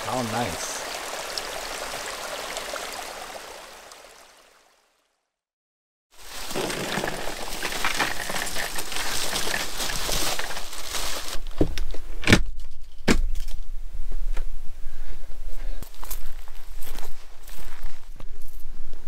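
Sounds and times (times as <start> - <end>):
bag of ice cubes crinkling: 6.2 - 11.5.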